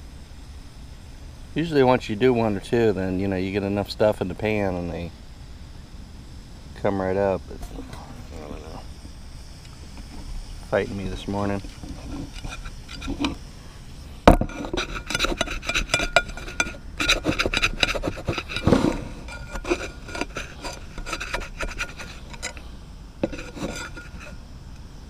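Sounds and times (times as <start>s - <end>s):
spatula scraping frying pan: 11.7s - 13.4s, 14.5s - 22.6s, 23.2s - 24.4s.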